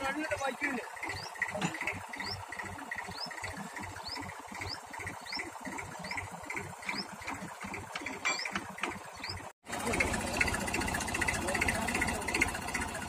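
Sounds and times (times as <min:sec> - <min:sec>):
fast ticking: 0:00.0 - 0:13.0
small machine running: 0:00.0 - 0:13.0
rising squeak: 0:01.0 - 0:09.5.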